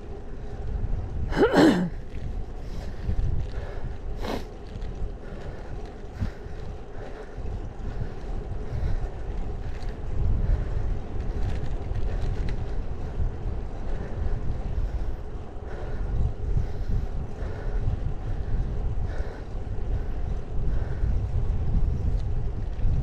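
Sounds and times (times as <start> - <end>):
tyres rolling on asphalt: 0.0 - 23.0
wind buffeting microphone: 0.0 - 23.0.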